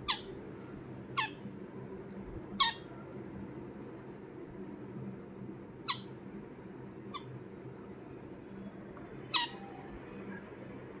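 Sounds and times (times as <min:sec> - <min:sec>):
parrot chirping: 0:00.0 - 0:00.4, 0:01.2 - 0:01.4, 0:02.6 - 0:02.9, 0:09.2 - 0:09.8
faint low hum: 0:00.0 - 0:11.0.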